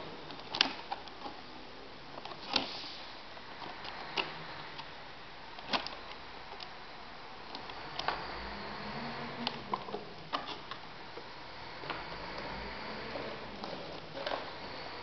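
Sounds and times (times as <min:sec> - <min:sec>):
plastic packaging clicking and crackling: 0:00.2 - 0:02.8, 0:03.5 - 0:06.8, 0:09.4 - 0:11.3.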